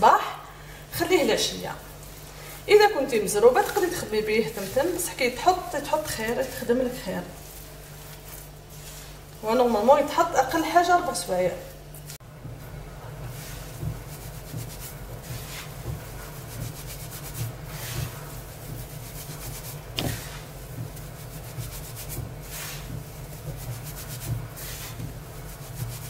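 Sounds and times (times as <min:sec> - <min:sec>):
hands rubbing semolina: 0:07.2 - 0:09.3, 0:13.1 - 0:26.0.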